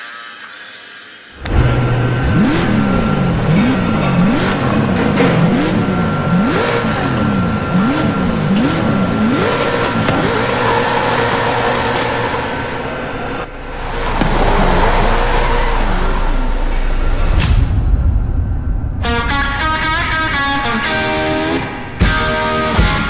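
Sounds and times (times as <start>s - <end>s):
car engine revving: 1.4s - 22.0s
tyre squeal: 5.3s - 17.1s.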